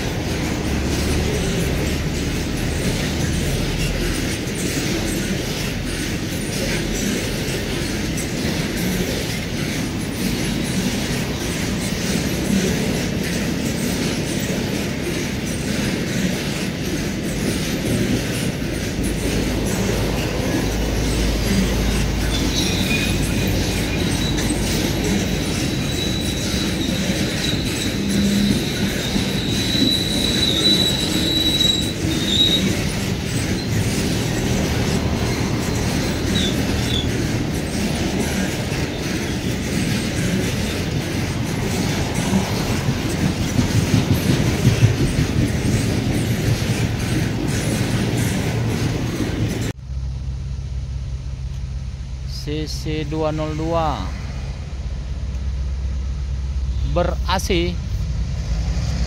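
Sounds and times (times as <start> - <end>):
high wheel squeal: 0.0 - 49.8
steel wheels rumbling on rails: 0.0 - 59.0.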